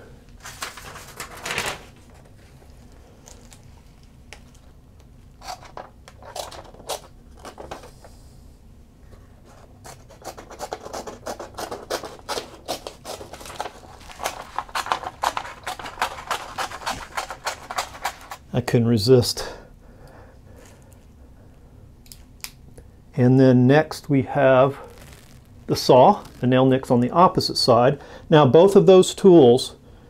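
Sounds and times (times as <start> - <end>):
scissors snipping paper: 9.8 - 18.4.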